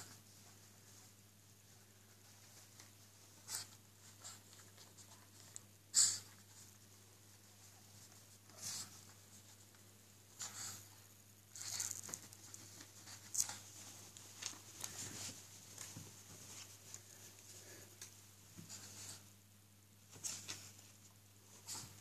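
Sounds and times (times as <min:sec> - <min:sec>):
towel rustling and scratching: 0:11.5 - 0:17.8.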